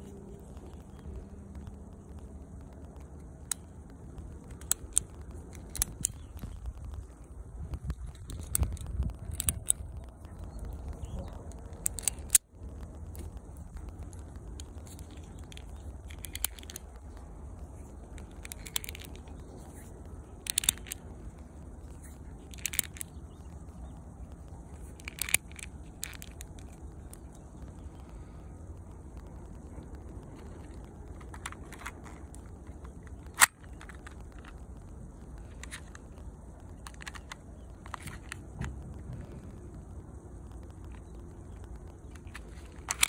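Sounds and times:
low wind rumble on microphone: 0.0s - 43.0s
small plastic clicks and scrapes: 2.8s - 28.3s, 29.5s - 34.7s, 35.3s - 39.7s, 40.5s - 43.0s.

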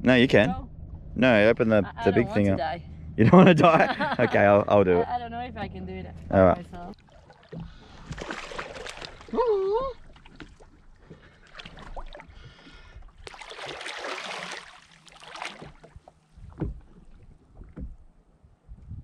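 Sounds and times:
water splashing against hull: 6.1s - 18.4s.

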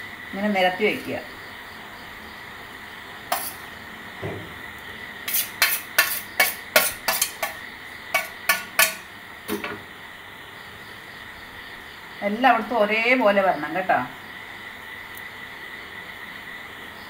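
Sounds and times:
cutlery clinking against plates: 5.3s - 9.8s.

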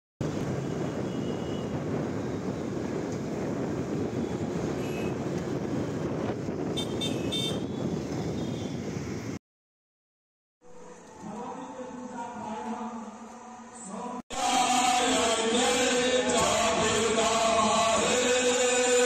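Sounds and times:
street traffic din: 0.2s - 9.4s, 14.5s - 19.0s.

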